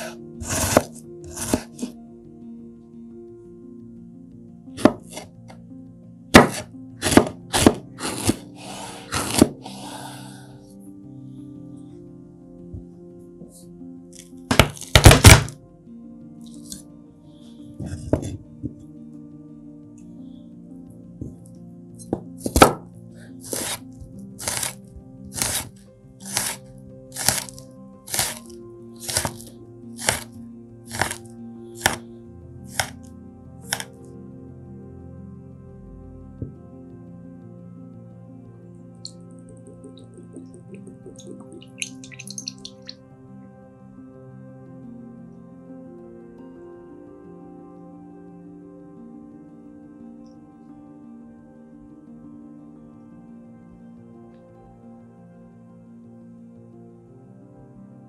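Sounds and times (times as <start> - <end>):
knife striking cutting board: 0.0 - 1.8, 4.8 - 5.2, 6.4 - 8.4, 9.1 - 9.6, 14.5 - 15.6, 22.4 - 22.8, 23.5 - 23.8, 24.4 - 24.8, 25.4 - 26.6, 27.2 - 28.4, 29.0 - 30.3, 30.9 - 31.2, 31.8 - 32.0, 32.7 - 33.0.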